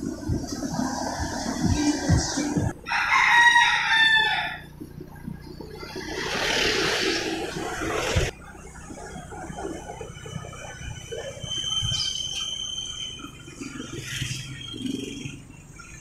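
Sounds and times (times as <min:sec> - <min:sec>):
vehicle rumble: 0:00.0 - 0:16.0
rooster crowing: 0:02.8 - 0:04.8
traffic hiss: 0:05.0 - 0:08.3.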